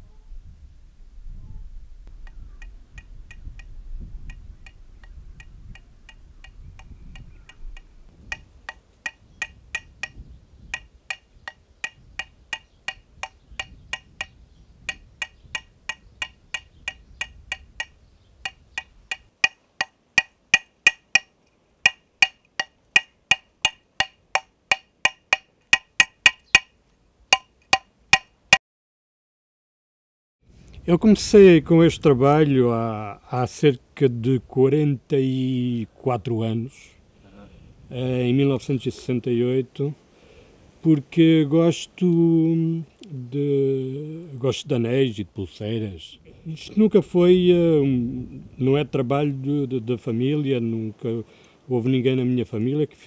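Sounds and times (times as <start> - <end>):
hammer tapping on metal: 8.3 - 26.7, 27.3 - 28.3.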